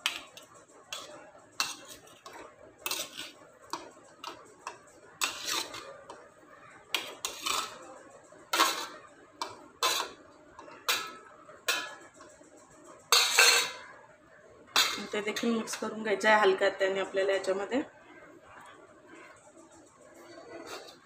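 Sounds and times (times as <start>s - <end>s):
steel spoon clinking against plate: 13.1s - 13.9s.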